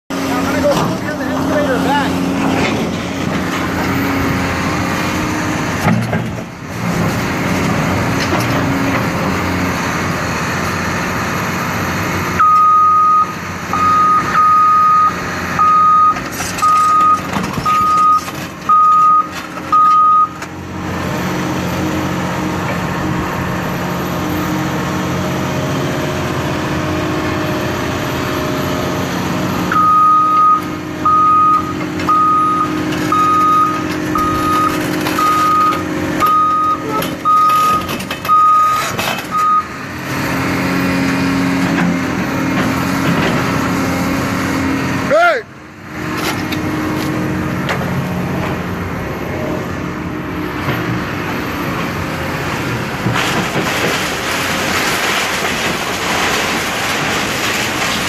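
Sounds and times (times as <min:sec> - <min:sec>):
machine engine drone: 0:00.1 - 0:12.4, 0:13.4 - 0:58.0
backup alarm beeping: 0:12.4 - 0:20.4, 0:29.7 - 0:39.7.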